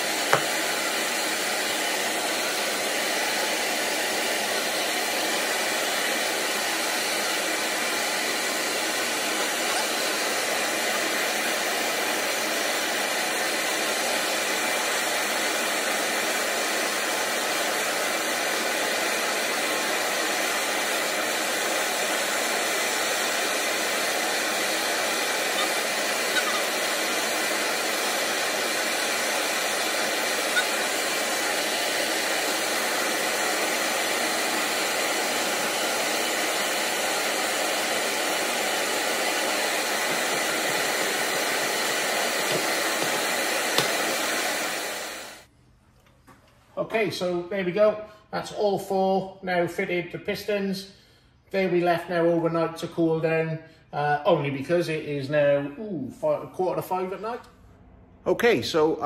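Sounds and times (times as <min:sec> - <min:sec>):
rushing air like a blower: 0:00.0 - 0:45.5.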